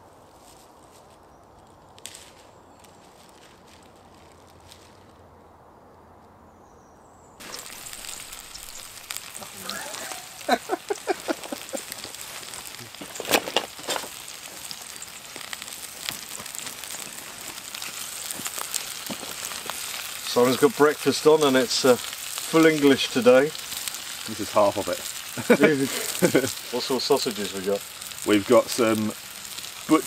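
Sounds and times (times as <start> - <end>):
food sizzling in a skillet: 7.4 - 30.0.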